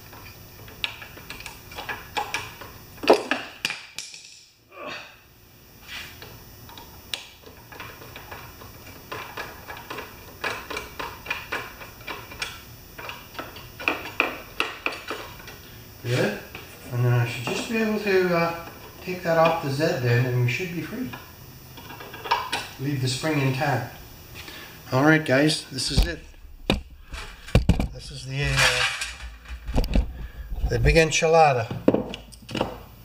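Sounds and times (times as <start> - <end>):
metal clatter: 27.1 - 30.0.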